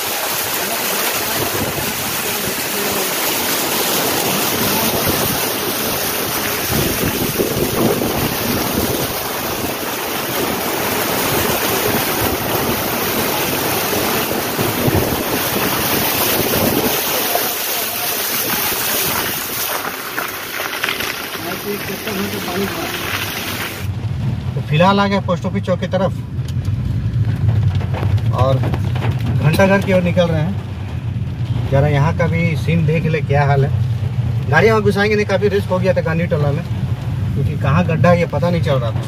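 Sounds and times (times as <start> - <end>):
tyres splashing through water: 0.0 - 23.9
wind buffeting microphone: 1.2 - 2.3, 3.8 - 17.2.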